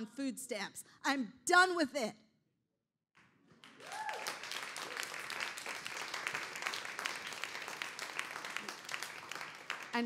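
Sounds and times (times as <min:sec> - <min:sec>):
audience applause: 0:03.6 - 0:10.0.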